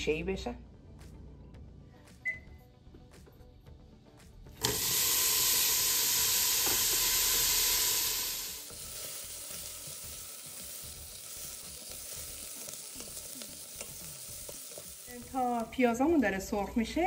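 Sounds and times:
onions sizzling in hot oil: 4.6 - 17.0.

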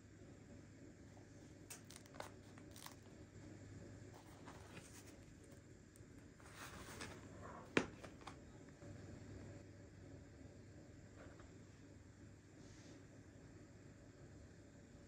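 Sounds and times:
bread crust crackling: 1.7 - 3.3.

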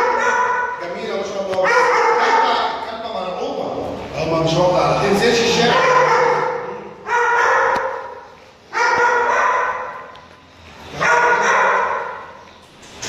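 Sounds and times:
dog barking: 0.0 - 0.8, 1.6 - 2.8, 5.6 - 10.1, 11.0 - 12.4.

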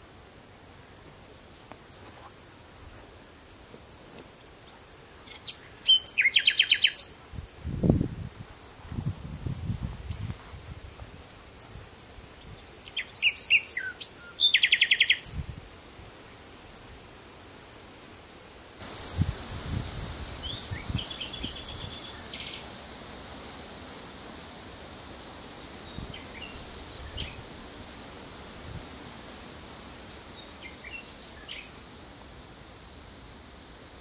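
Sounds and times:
high-pitched insect trill: 0.0 - 22.8, 24.7 - 32.0
nightingale singing: 5.2 - 7.2, 12.6 - 15.4, 20.4 - 22.6.

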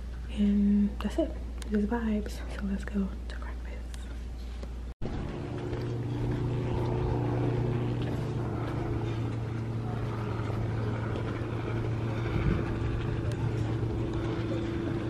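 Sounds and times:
motor humming: 5.0 - 15.0.

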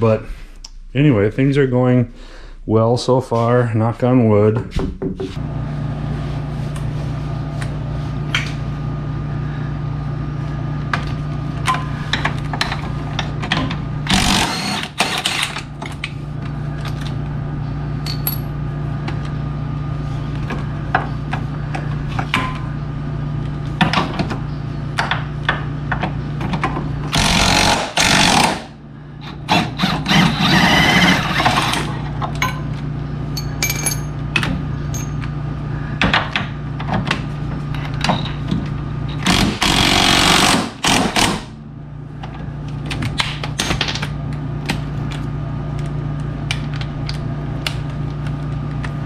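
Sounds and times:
low steady hum: 0.0 - 49.0
power tool loosening bolts: 14.1 - 15.6, 27.1 - 32.0, 39.1 - 41.5.

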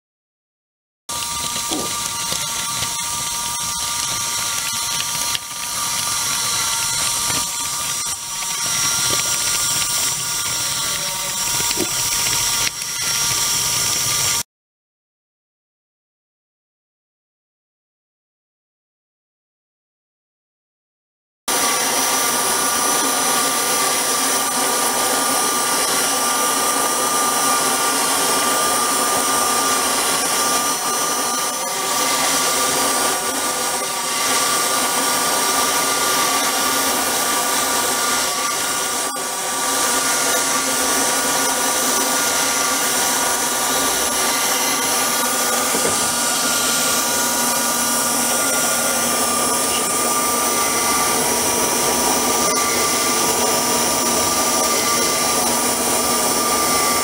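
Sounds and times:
model crawler motor whine: 1.1 - 14.4, 21.5 - 57.0.

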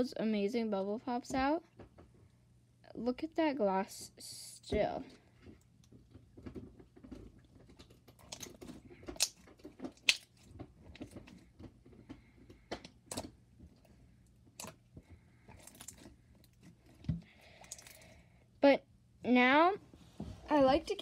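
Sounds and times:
slime squishing: 5.4 - 18.1
slime clicking and popping: 8.3 - 10.4.

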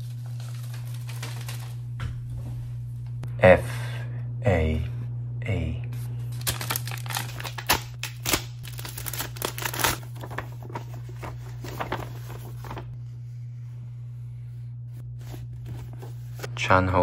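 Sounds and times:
paper crinkling and rustling: 0.0 - 2.0, 6.3 - 13.0, 15.2 - 16.5
steady low hum: 0.0 - 17.0.

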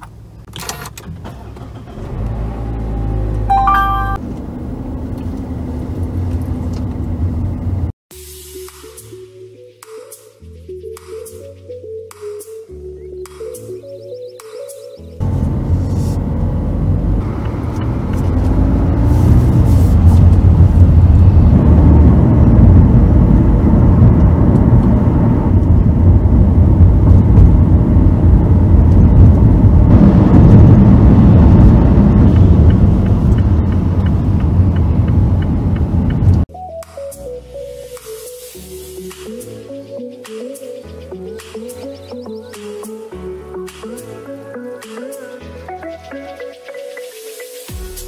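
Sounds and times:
car road and engine rumble: 0.0 - 8.0, 15.2 - 36.5.

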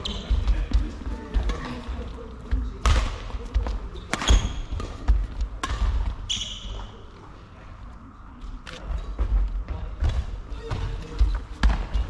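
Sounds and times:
shoe squeaks: 0.0 - 0.4, 4.0 - 4.8, 6.2 - 7.0
racket striking shuttlecock: 4.1 - 6.0.

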